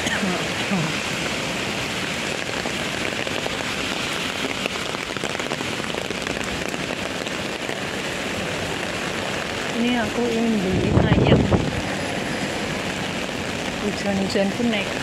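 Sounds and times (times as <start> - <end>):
heavy rain on umbrella: 0.0 - 15.0
rain on wet pavement: 0.0 - 15.0.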